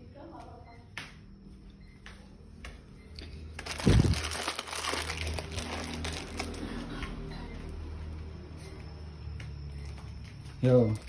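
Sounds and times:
crinkling and rustling: 3.6s - 6.9s.

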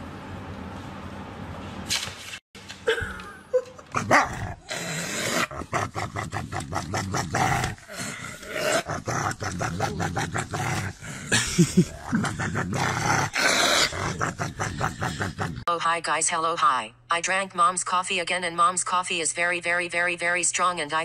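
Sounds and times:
dog growling and grumbling: 3.9s - 15.7s.

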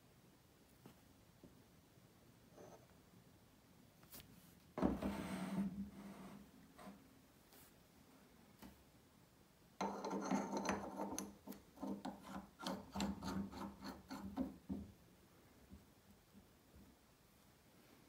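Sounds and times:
metal vise scraping and clicking: 9.8s - 14.5s.

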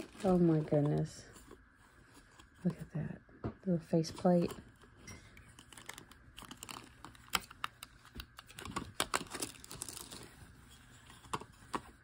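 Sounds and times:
plastic wrap peeling: 0.0s - 1.7s, 4.4s - 11.2s.

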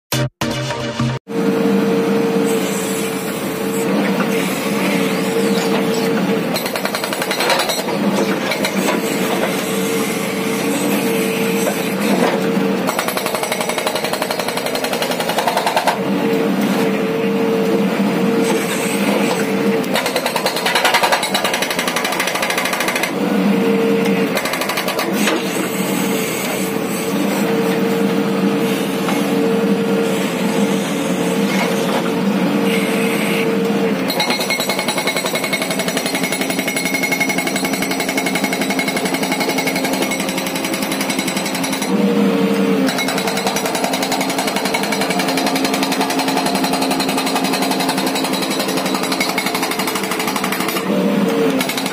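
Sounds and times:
diesel engine drone: 0.1s - 6.6s, 15.8s - 20.0s, 22.9s - 34.3s, 41.5s - 46.8s
hydraulic rock breaker hammering: 4.0s - 16.0s, 18.5s - 23.2s, 24.0s - 26.8s, 34.0s - 51.9s.

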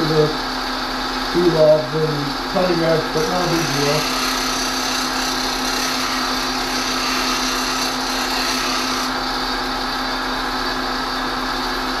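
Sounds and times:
bench grinder humming: 2.6s - 10.0s
metal grinding on wheel: 3.2s - 9.2s.

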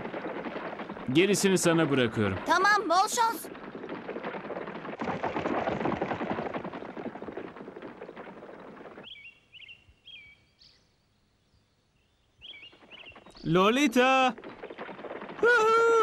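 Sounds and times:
horse hoofbeats galloping: 0.0s - 9.2s, 12.5s - 16.0s.

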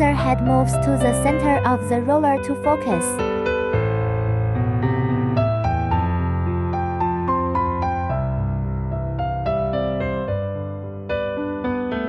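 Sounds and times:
keyboard music: 0.0s - 8.3s.

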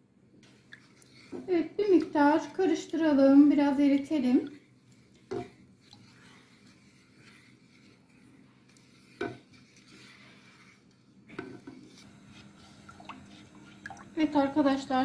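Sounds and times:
spatula scraping sugar in pot: 5.4s - 15.0s.

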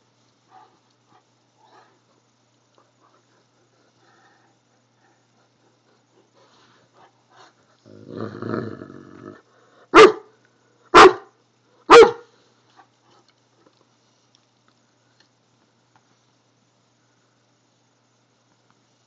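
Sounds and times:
dog growling: 7.8s - 9.5s
dog barking: 9.9s - 10.3s, 10.9s - 12.3s.

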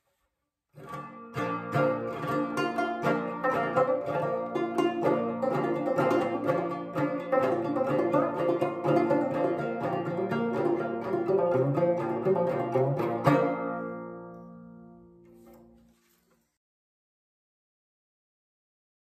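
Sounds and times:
banjo plucked notes: 0.8s - 16.0s.

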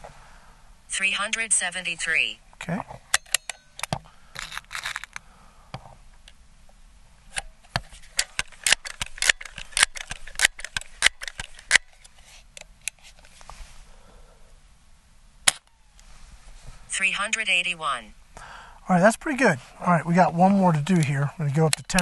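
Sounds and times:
air pistol pump clicks: 8.2s - 13.1s
air pistol shot: 15.5s - 15.7s.

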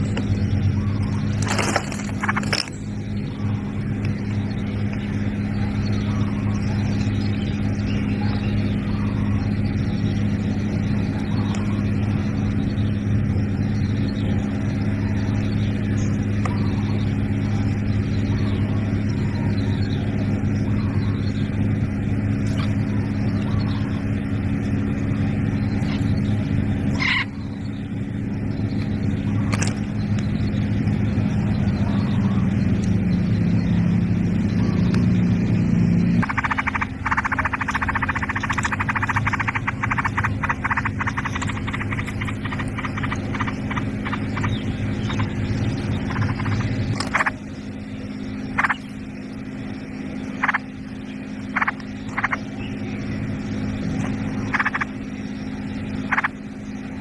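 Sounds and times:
low mechanical hum: 0.0s - 57.0s
sharp clicks: 28.8s - 30.3s, 36.2s - 45.3s, 46.0s - 47.4s.

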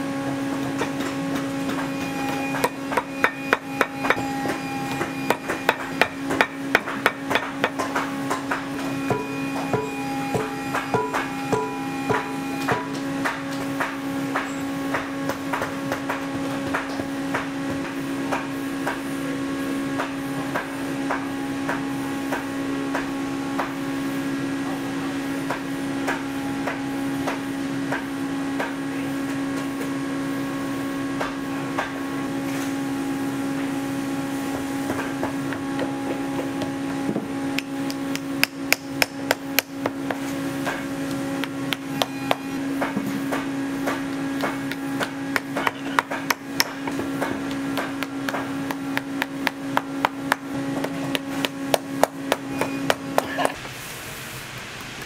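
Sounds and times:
steady hum: 0.0s - 55.0s
hammer tapping: 0.8s - 19.0s, 34.9s - 53.6s.

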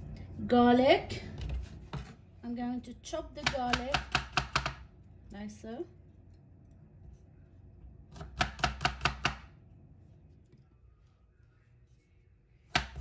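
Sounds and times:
knife chopping on wooden board: 3.4s - 4.8s, 8.2s - 9.5s, 12.7s - 13.0s.

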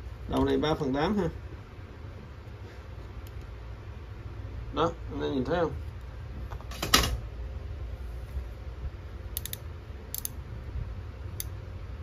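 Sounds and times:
light metallic clicks: 9.4s - 10.4s.

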